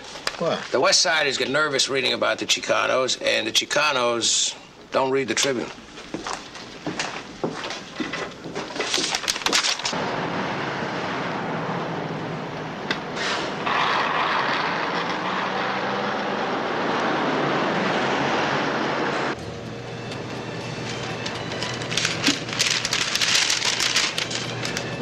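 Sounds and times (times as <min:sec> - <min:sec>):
street traffic noise: 0:09.8 - 0:25.0.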